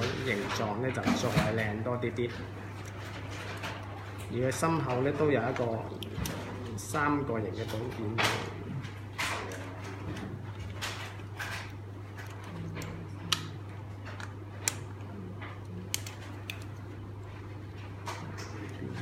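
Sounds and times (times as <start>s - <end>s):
steady low hum: 0.0s - 19.0s
plastic model parts clicking: 15.9s - 16.7s.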